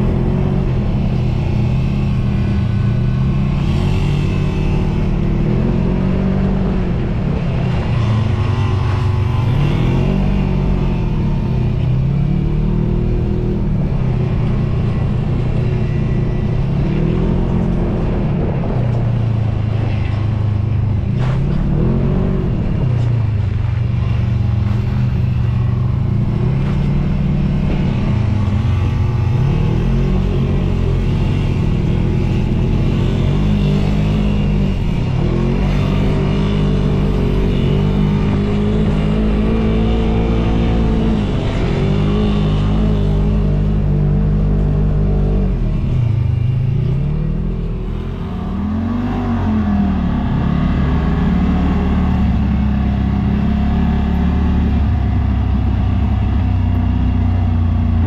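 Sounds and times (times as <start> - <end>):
utility vehicle engine revving: 0.0 - 58.0.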